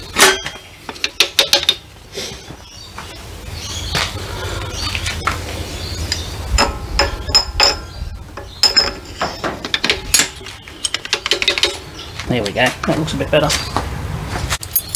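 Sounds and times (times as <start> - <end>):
metal gears clinking: 6.1 - 11.8, 14.6 - 14.9.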